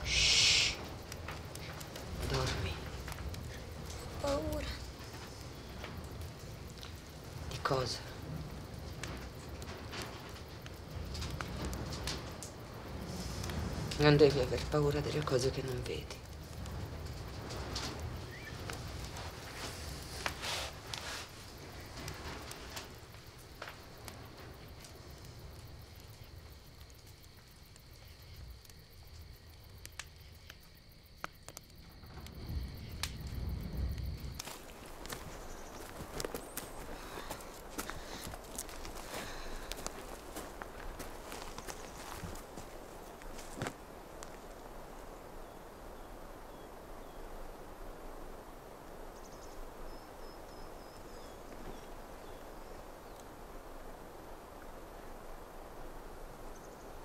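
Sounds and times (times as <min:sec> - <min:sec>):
faint clicks: 0:00.0 - 0:45.1
crickets chirping: 0:00.0 - 0:57.0
soft forest rustle: 0:00.0 - 0:57.0
small bird chirping: 0:18.3 - 0:18.7, 0:35.2 - 0:37.0
footstep crunch on dry ground: 0:34.4 - 0:44.4.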